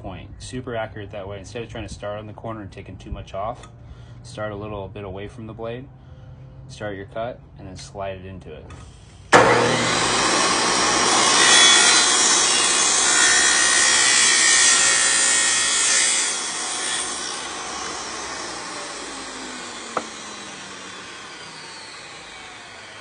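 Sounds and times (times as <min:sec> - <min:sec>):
tile saw grinding metal trim: 0:09.4 - 0:23.0.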